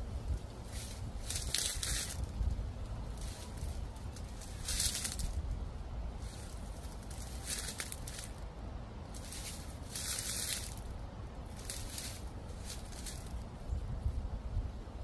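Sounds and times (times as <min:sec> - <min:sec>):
wind rumble on microphone: 0:00.0 - 0:15.0
footsteps crunching on dry leaves: 0:00.6 - 0:05.6, 0:06.2 - 0:08.4, 0:09.1 - 0:13.4.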